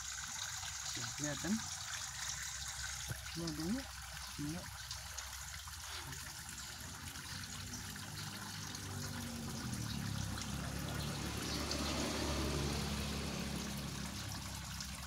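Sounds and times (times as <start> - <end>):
trickle of running water: 0.0 - 15.0
water splashing in tank: 0.0 - 15.0.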